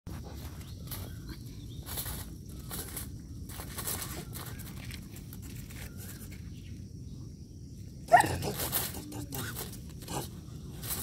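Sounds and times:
dog paws on gravel: 0.1 - 6.7.

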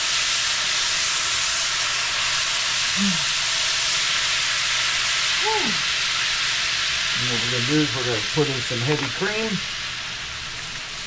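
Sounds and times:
garlic sizzling in butter: 0.0 - 11.0.

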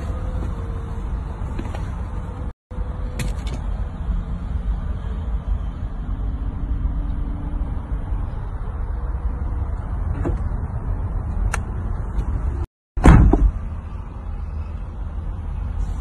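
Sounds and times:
loud thump: 13.0 - 13.6.

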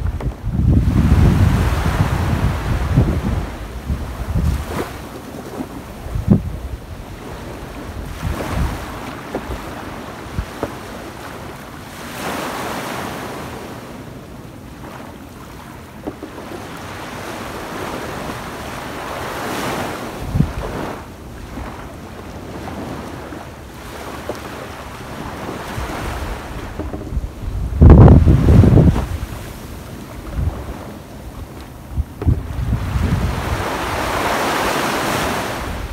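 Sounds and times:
wind buffeting microphone: 0.0 - 11.6, 16.1 - 35.9
small waves breaking on beach: 0.0 - 35.9.

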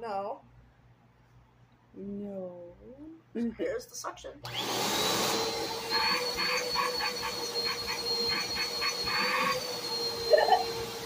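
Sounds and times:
vacuum motor hum with whistle: 4.5 - 11.0.

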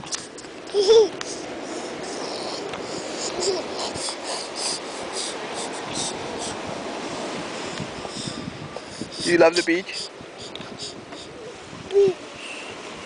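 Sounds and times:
steady hiss: 0.0 - 13.0
child vocal sound: 0.7 - 6.6, 10.4 - 12.7.

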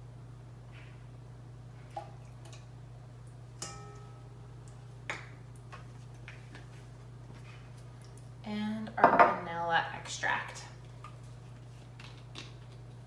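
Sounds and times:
steady low hum: 0.0 - 13.0
measuring cup clinking on metal bowl: 3.6 - 4.2.

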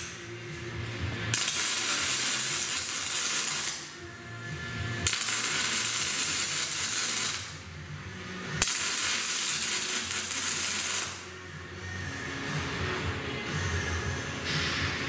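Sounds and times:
arc welding crackling hiss: 1.3 - 4.0, 5.0 - 7.7, 8.6 - 11.4.

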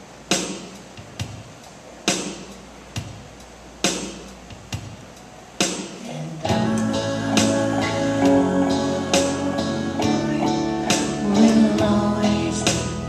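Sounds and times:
electric keyboard chords: 6.4 - 13.0
acoustic guitar strumming: 6.5 - 13.0.

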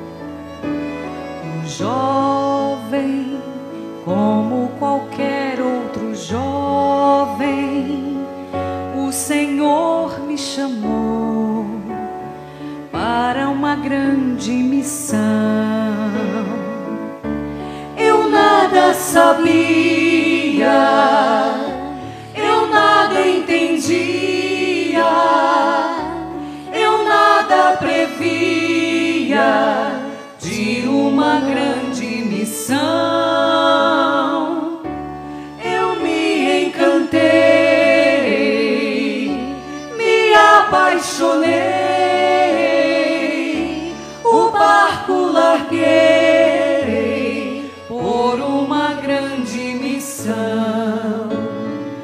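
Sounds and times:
song with vibrato vocals: 17.8 - 34.7.

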